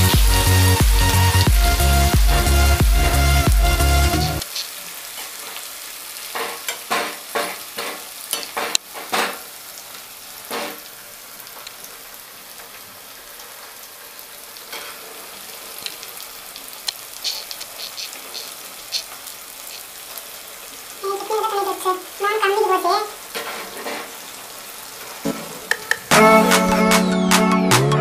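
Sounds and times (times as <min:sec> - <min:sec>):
corn sizzling in hot oil: 0:00.0 - 0:26.1
strainer scraping pan: 0:25.2 - 0:25.7.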